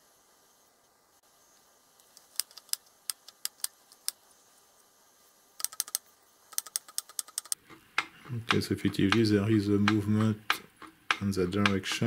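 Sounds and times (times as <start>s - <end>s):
light mechanical clicks: 5.6s - 9.3s.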